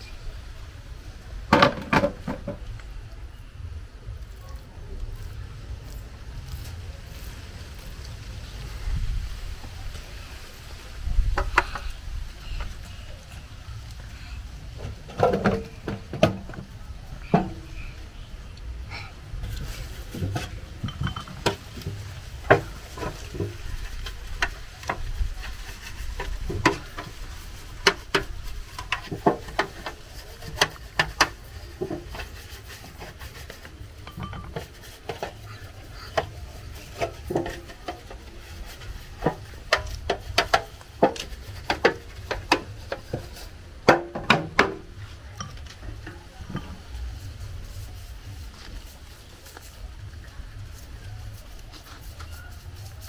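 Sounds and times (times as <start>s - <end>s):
steady low rumble: 2.4s - 43.9s
metal tins and utensils clinking: 19.6s - 47.1s.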